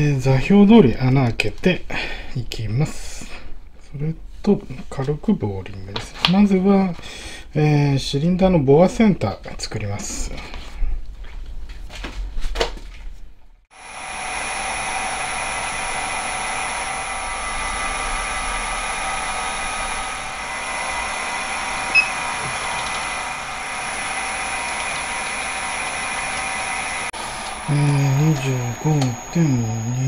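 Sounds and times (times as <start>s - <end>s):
milling machine spindle whine: 13.8s - 30.0s.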